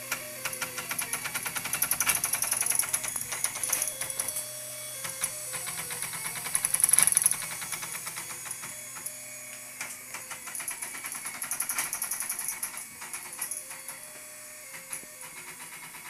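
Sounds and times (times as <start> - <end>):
stepper motors clanking: 0.0 - 16.0.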